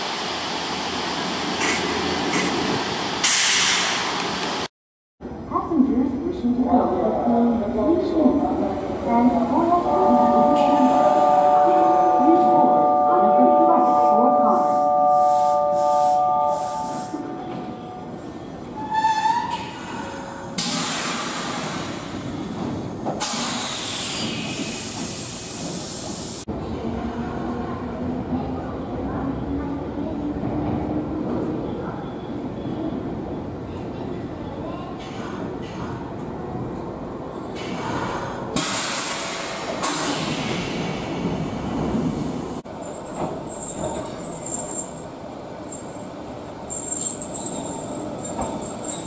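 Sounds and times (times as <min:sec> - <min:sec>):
compressed air hissing from brakes: 0:20.6 - 0:22.2, 0:23.2 - 0:26.4, 0:37.6 - 0:41.2.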